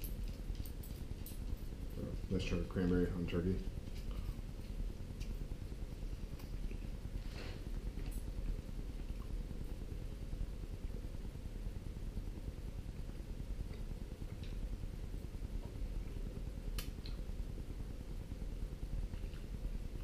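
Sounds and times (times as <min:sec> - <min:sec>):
low room hum: 0:00.0 - 0:20.0
man chewing food: 0:03.9 - 0:09.9, 0:13.6 - 0:14.8, 0:19.0 - 0:19.8.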